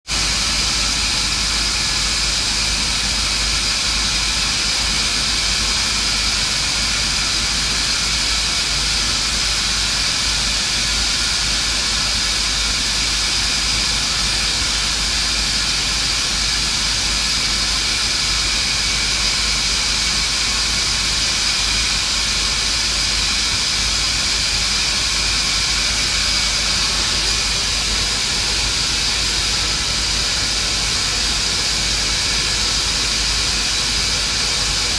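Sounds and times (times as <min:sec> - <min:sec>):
welding arc hissing: 0:00.1 - 0:34.9.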